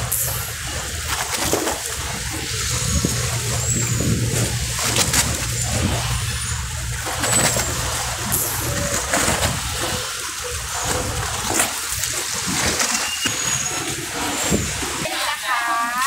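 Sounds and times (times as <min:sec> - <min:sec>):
low rumble: 0:00.0 - 0:12.7
river water splashing: 0:00.0 - 0:16.0.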